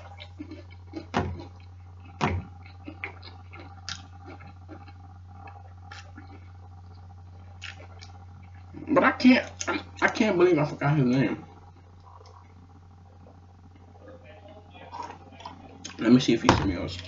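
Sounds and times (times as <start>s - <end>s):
chewing food: 0.0s - 10.2s, 11.5s - 16.0s
steady low hum: 0.0s - 17.0s
sharp knocks: 1.1s - 1.5s, 2.2s - 2.5s.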